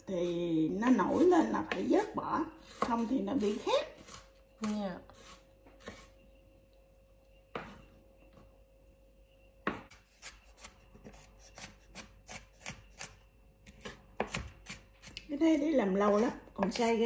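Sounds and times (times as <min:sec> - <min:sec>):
knife chopping on cutting board: 0:01.0 - 0:04.3, 0:05.2 - 0:06.1, 0:09.6 - 0:15.2.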